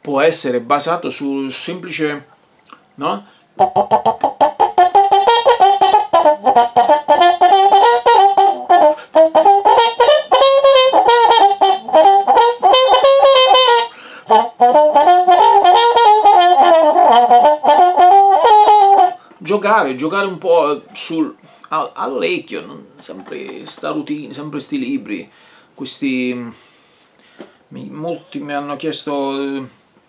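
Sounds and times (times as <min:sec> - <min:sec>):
trumpet playing staccato jazz: 0:03.6 - 0:19.2.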